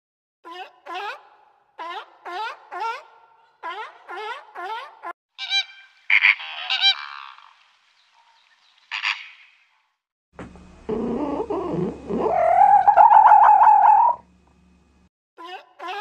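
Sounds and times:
seal calling: 10.9 - 14.2.

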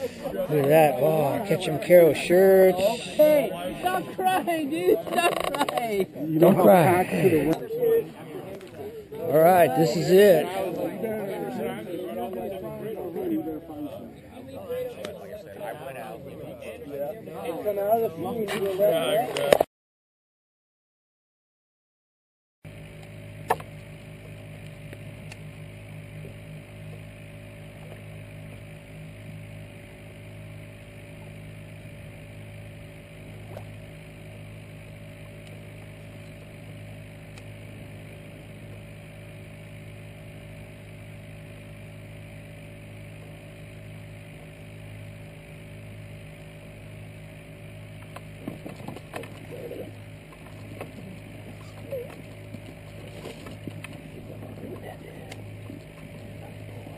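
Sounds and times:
low mechanical hum: 0.0 - 19.6, 22.7 - 56.9.

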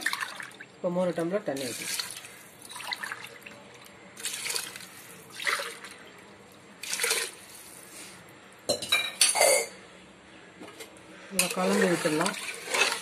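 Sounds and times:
water pouring into pot: 0.0 - 0.7, 1.5 - 6.2, 6.8 - 7.5, 11.4 - 13.0.

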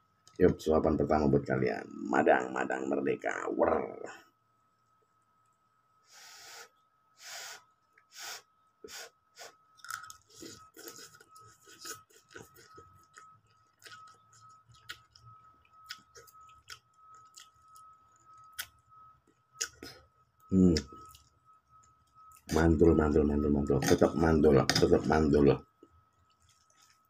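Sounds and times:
wet chewing with lip smacks: 9.8 - 18.8.

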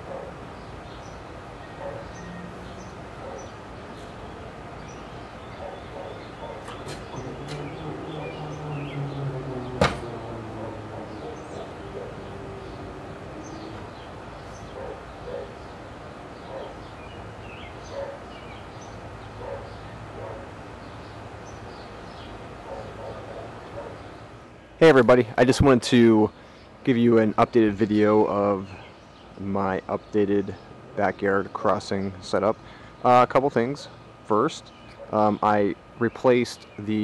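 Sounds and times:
crossing gate mechanism humming: 0.0 - 26.2
birds chirping: 0.0 - 37.0.

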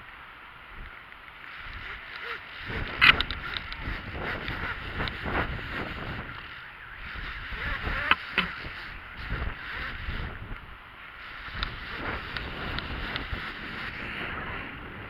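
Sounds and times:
wind on microphone: 1.6 - 15.0.

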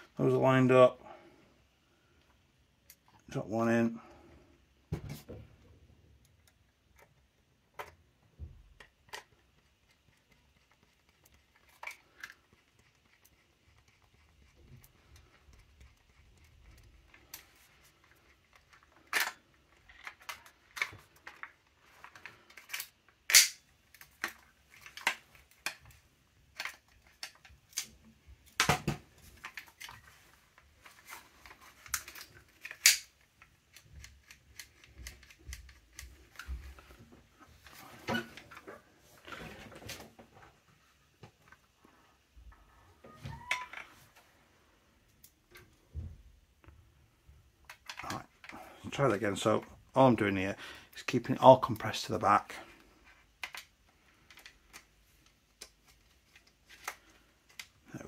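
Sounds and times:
clicks and knocks of handled parts: 6.1 - 40.1, 47.6 - 48.7, 51.3 - 58.0.

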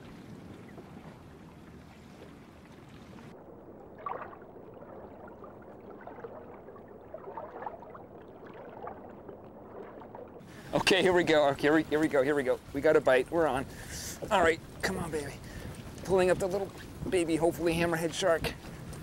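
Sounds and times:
small splashes: 0.0 - 12.8
water lapping around boat: 0.0 - 19.0.

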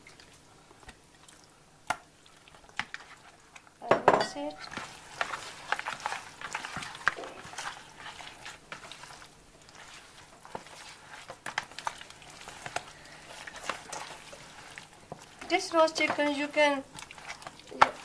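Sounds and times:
wet smacks and clicks: 0.8 - 3.0.

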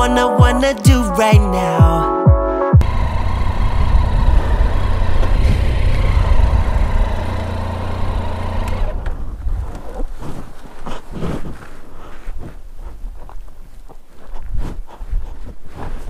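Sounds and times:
motorcycle engine running: 2.8 - 9.9
road noise on dirt track: 2.8 - 15.0.

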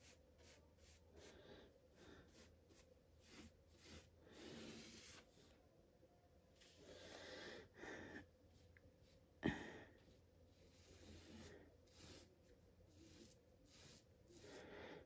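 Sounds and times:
paintbrush swishing over surface: 0.0 - 1.4, 2.2 - 5.4, 10.0 - 14.6.

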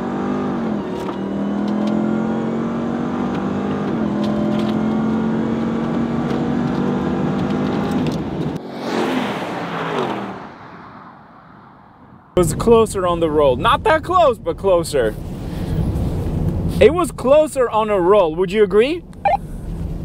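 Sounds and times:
trucks passing by: 8.2 - 13.6.

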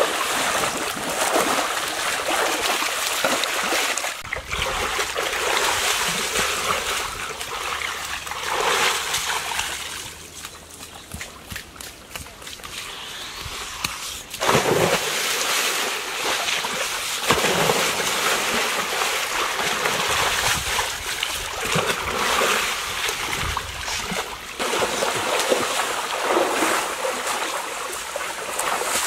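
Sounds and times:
splash into pool: 0.0 - 10.1, 12.7 - 29.0
water sloshing and splashing: 0.0 - 29.0.

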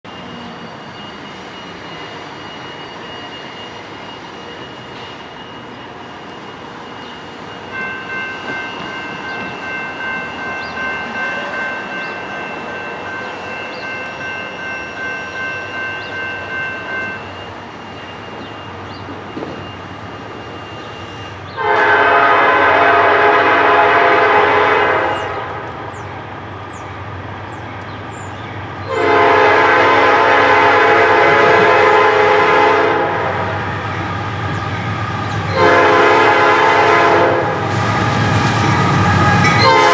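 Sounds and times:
distant train horn chord: 21.5 - 26.0, 28.8 - 33.6, 35.5 - 37.7, 38.9 - 39.9.

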